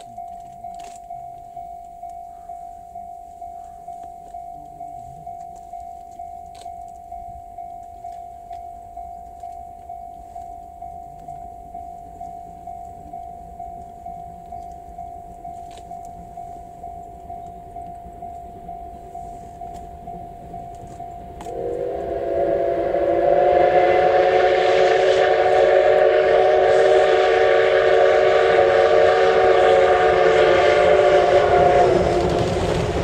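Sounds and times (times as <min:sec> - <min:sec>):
level crossing warning bell: 0:00.0 - 0:24.7.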